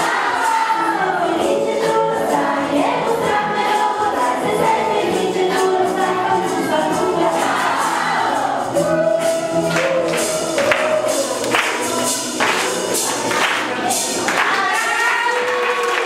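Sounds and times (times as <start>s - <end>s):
group singing in chorus: 0.0s - 16.0s
hand claps: 9.7s - 16.0s.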